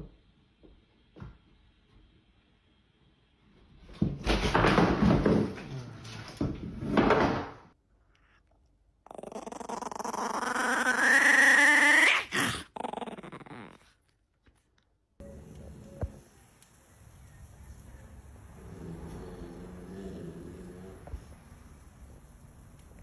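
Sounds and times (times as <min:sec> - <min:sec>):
puppy growling into a high whine: 0:09.0 - 0:14.2, 0:18.5 - 0:21.3
cats fighting: 0:09.1 - 0:14.0.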